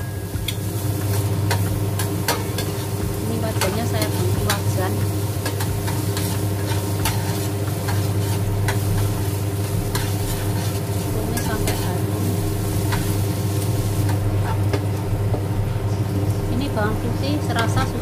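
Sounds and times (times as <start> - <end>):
garlic sizzling in oil: 0.0 - 18.0
steady low hum: 0.0 - 18.0
metal spatula scraping a pan: 5.4 - 9.2, 9.8 - 11.9.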